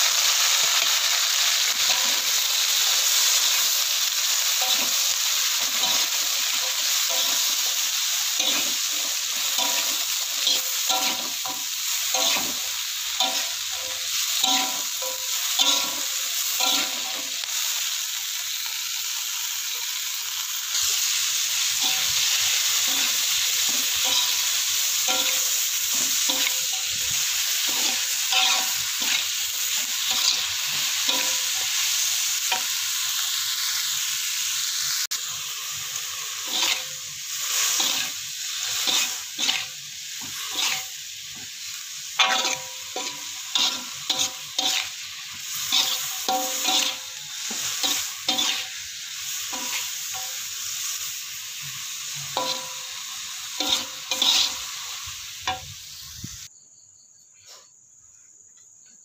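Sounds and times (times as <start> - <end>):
vegetables sizzling in a wok: 0.0 - 56.6
metal spatula scraping a wok: 0.1 - 17.5, 20.7 - 33.3, 36.2 - 50.9, 51.7 - 56.3.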